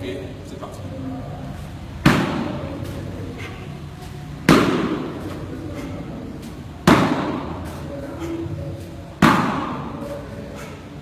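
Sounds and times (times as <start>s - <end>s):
body slapping foam mat: 4.4s - 5.5s, 6.4s - 7.7s, 9.2s - 10.1s.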